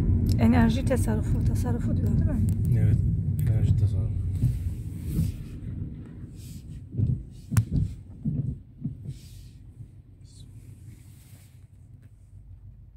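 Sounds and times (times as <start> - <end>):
car interior rumble on wet road: 0.0 - 12.9
dull thumps: 2.8 - 10.0.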